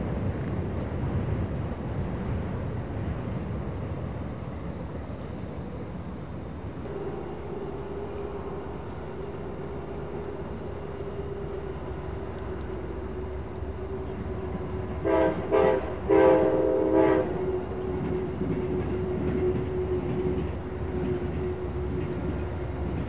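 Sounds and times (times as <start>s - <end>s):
distant train horn blasts: 6.8s - 23.0s.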